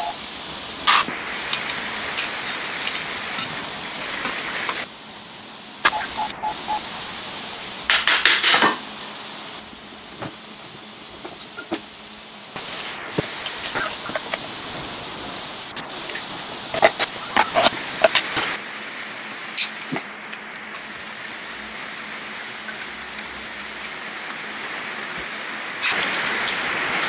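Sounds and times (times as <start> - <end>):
steady hiss: 0.0 - 27.0.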